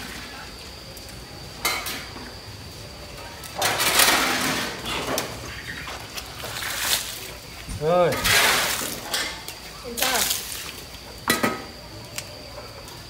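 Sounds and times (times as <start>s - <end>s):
water splashing onto concrete: 3.4s - 11.0s.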